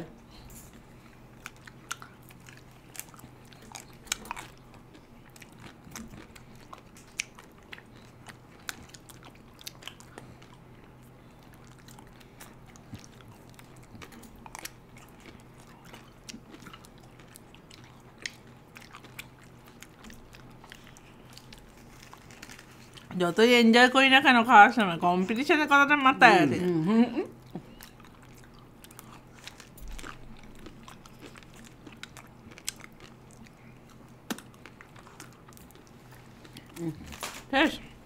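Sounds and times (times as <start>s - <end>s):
lip smacks: 30.9s - 35.8s.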